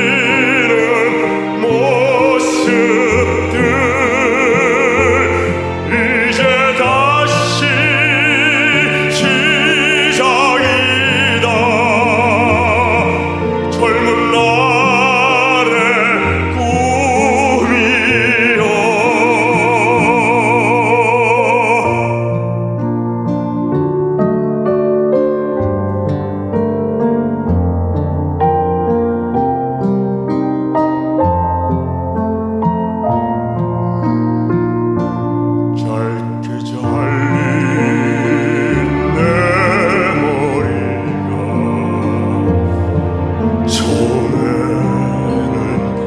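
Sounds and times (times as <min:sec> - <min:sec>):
man singing operatically: 0:00.0 - 0:22.6, 0:35.7 - 0:46.0.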